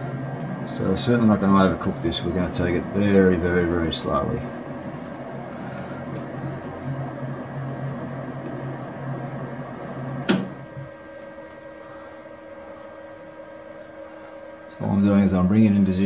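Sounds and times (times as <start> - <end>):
metal lathe humming: 0.0 - 10.3
faint high whine: 0.0 - 10.8.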